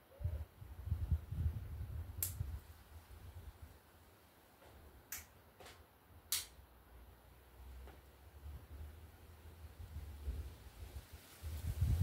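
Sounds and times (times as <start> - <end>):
bean pods snapping: 2.2 - 2.4, 6.3 - 6.6.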